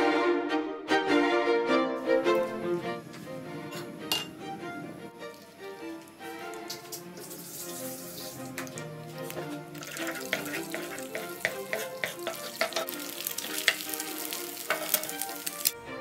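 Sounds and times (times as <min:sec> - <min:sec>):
background music: 0:00.0 - 0:16.0
egg sizzling in a pan: 0:06.8 - 0:15.8
wooden spatula scraping a pan: 0:09.3 - 0:15.5.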